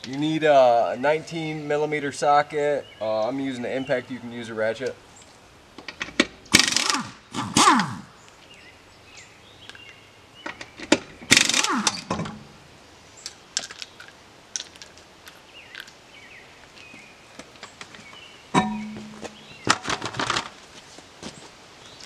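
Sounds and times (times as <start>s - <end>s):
impact wrench hammering lug nuts: 6.0s - 8.0s, 10.9s - 12.4s, 18.6s - 19.9s.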